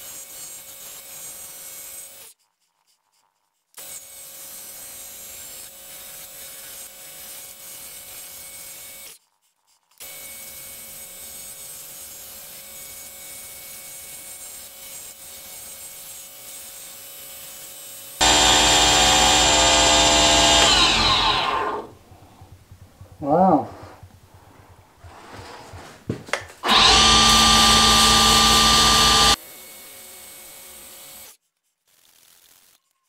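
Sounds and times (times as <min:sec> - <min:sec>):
wood lathe motor whine: 0:18.2 - 0:22.0, 0:26.6 - 0:29.4.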